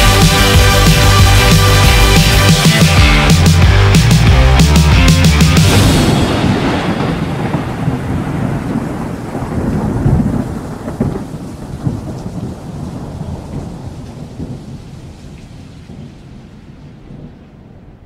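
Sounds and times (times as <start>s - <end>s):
rolling thunder rumble: 5.6s - 18.0s
rain hiss: 5.7s - 17.3s.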